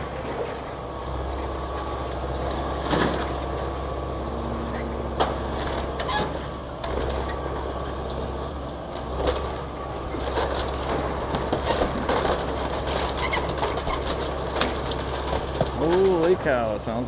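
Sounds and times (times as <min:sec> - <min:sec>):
excavator engine running: 0:00.0 - 0:17.0
building cracking and crunching: 0:04.6 - 0:17.0.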